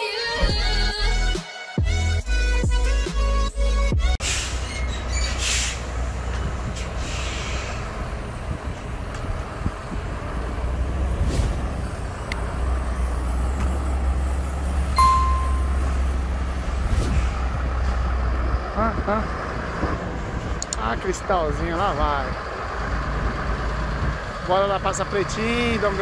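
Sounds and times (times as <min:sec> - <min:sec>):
short air hisses: 0:04.2 - 0:04.7, 0:05.3 - 0:05.9, 0:06.8 - 0:07.8
truck diesel engine running: 0:04.3 - 0:26.0
brief high beep: 0:15.0 - 0:15.8.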